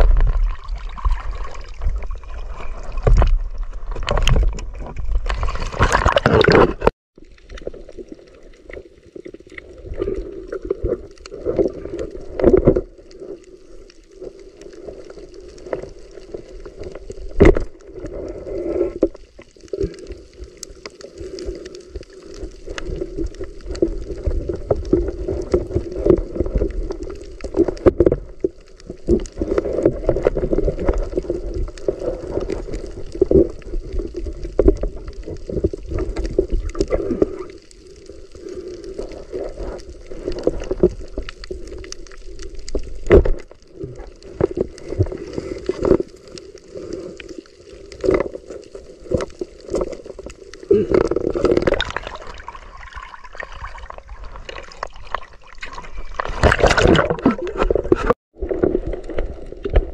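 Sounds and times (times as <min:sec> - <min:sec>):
underwater clicks and knocks: 0:00.0 - 0:07.9, 0:22.7 - 0:37.4, 0:42.6 - 0:46.1, 0:53.9 - 0:59.9
water splashing: 0:00.0 - 0:59.9.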